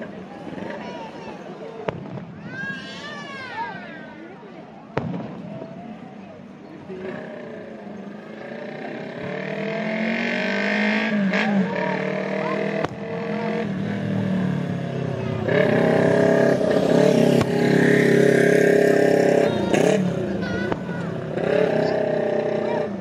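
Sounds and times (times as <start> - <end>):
distant fireworks bangs: 1.8 - 2.5, 4.9 - 5.8.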